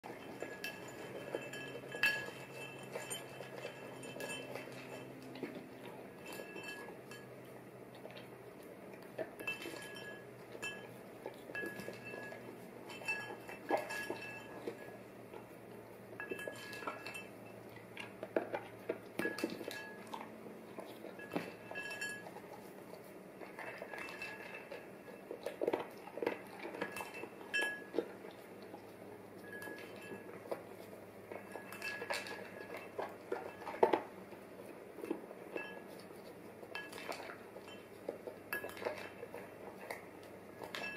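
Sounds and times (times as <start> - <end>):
metal spoon clinking on ceramic bowl: 0.1 - 5.4, 6.1 - 7.4, 9.2 - 15.0, 16.2 - 17.9, 19.2 - 20.3, 21.1 - 22.4, 23.5 - 25.2, 26.2 - 28.1, 29.4 - 30.6, 31.3 - 34.0, 36.7 - 40.0, 40.6 - 40.9.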